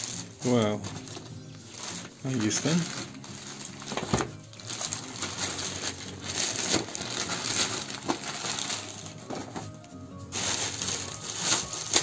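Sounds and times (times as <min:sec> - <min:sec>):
plastic bag rustling and crinkling: 0:00.0 - 0:12.0
packaging clicks and knocks: 0:02.6 - 0:12.0.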